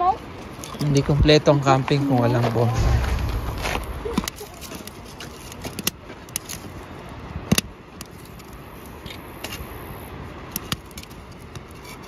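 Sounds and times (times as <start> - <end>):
campfire crackling: 2.5 - 7.2.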